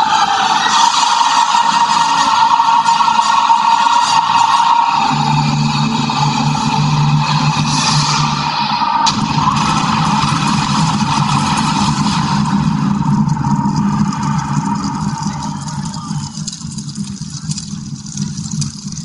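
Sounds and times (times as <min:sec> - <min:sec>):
low rumbling sound effect: 0:04.2 - 0:19.0.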